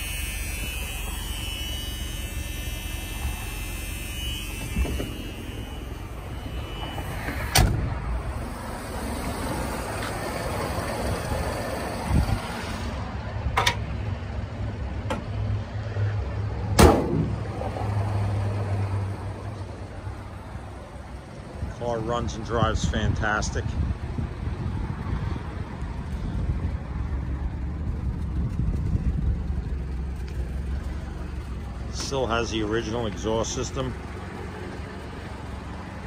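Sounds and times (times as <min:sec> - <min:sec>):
car engine idling: 0:00.0 - 0:12.5, 0:25.6 - 0:36.0.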